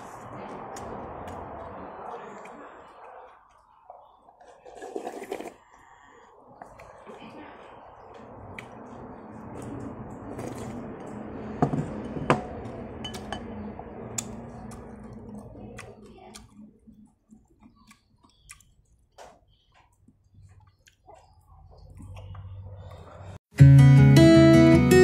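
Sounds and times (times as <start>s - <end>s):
person slurping noodles: 4.4s - 6.2s
chewing mouth sounds: 14.0s - 19.1s.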